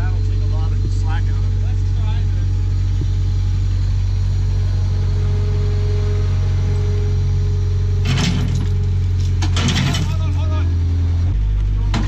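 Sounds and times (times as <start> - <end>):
diesel engine running under load: 0.0 - 12.0
metal clattering: 8.0 - 10.6.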